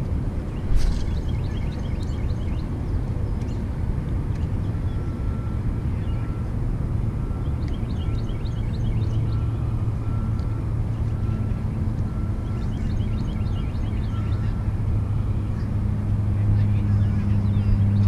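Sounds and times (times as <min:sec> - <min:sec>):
steady low rumble: 0:00.0 - 0:18.0
bird chirping: 0:00.6 - 0:02.7, 0:12.4 - 0:14.6.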